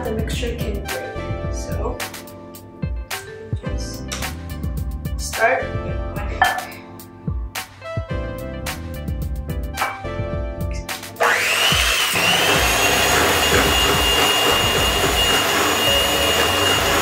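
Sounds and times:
background music: 0.0s - 17.0s
electric hand mixer whining: 11.2s - 17.0s.

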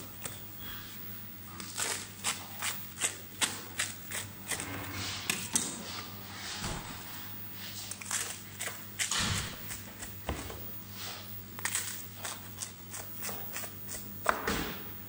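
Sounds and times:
knife cutting crisp pizza crust: 1.5s - 4.7s, 7.8s - 10.2s, 11.1s - 14.4s.

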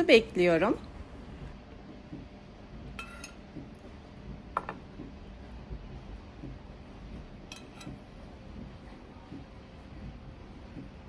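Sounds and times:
metal spoon clinking: 7.5s - 7.9s.

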